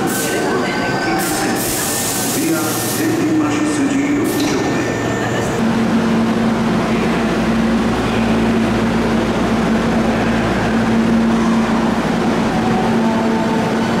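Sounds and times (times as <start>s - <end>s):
train doors sliding shut: 0.0s - 5.0s
train humming: 0.0s - 14.0s.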